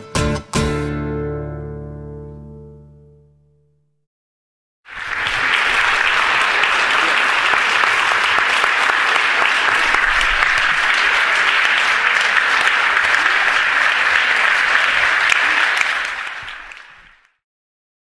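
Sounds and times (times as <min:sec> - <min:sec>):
audience applauding: 0:04.9 - 0:17.4.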